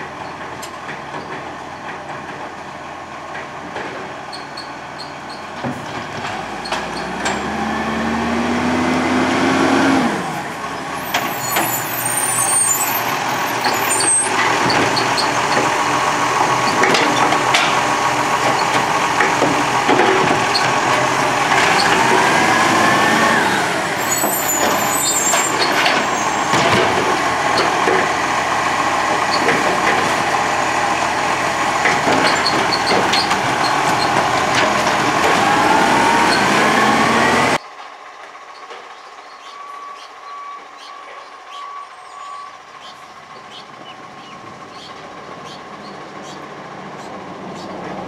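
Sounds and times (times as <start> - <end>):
garbage truck engine and hydraulics: 0.0 - 48.0
street background: 0.0 - 48.0
rising hydraulic whine: 34.8 - 37.6.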